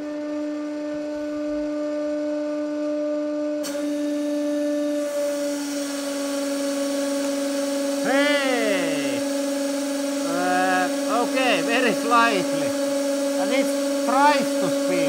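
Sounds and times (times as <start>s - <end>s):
hydraulic pump humming: 0.0s - 15.0s
hydraulic hiss: 3.6s - 15.0s.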